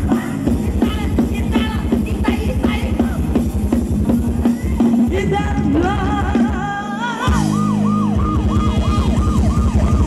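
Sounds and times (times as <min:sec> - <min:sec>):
dance band music: 0:00.0 - 0:10.0
electronic siren-like sweep: 0:07.2 - 0:10.0.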